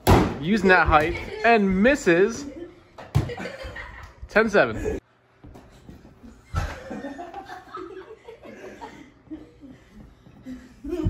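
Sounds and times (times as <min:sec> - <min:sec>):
quiet chuckling and laughter: 0:06.1 - 0:11.0.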